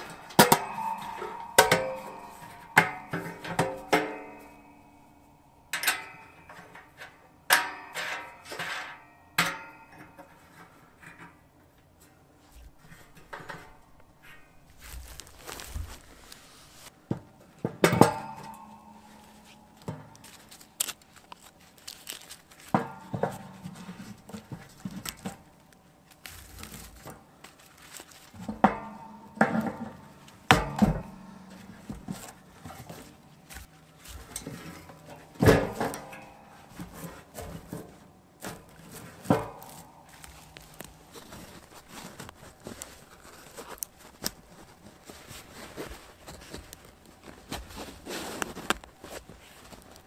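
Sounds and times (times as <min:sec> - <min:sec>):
metal stove knocks and clanks: 0:00.0 - 0:11.4, 0:17.1 - 0:20.2, 0:28.4 - 0:33.1, 0:34.2 - 0:37.9
rustling handling noise: 0:00.0 - 0:50.0.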